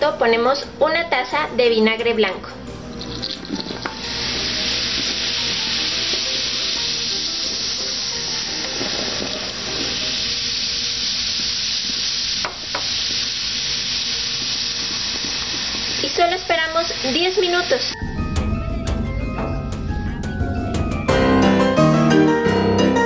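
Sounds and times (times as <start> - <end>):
vinegar pouring: 2.7 - 16.0
fizzing and foaming hiss: 2.9 - 18.0.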